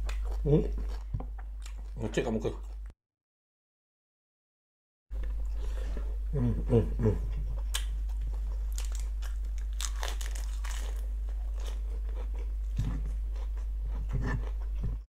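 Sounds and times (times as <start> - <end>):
steady low hum: 0.0 - 2.9, 5.1 - 15.0
crunching and chewing lettuce: 7.3 - 15.0.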